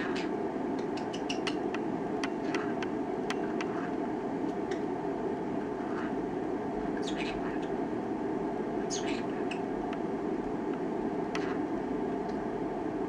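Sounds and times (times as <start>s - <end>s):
room noise hum: 0.0s - 13.0s
parrot clicking: 0.8s - 3.8s.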